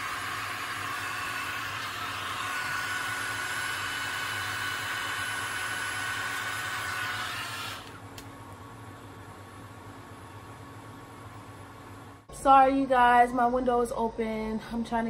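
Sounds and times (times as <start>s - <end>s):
hair dryer blowing: 0.0s - 8.0s.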